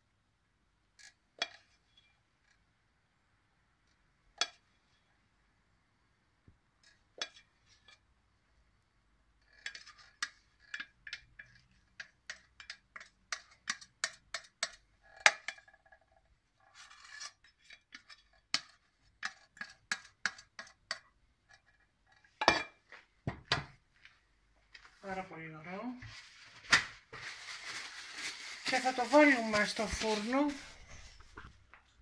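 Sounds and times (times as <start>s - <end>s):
spoon scraping saucepan: 9.4s - 22.9s.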